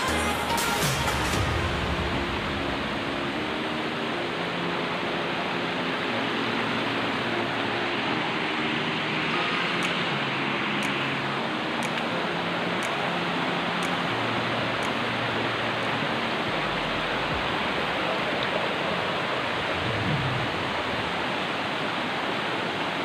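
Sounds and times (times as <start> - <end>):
mountain stream rushing: 0.0 - 23.0.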